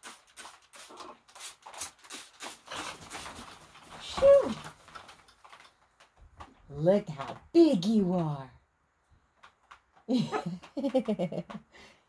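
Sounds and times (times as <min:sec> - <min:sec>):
spray bottle squirting: 0:00.0 - 0:03.4.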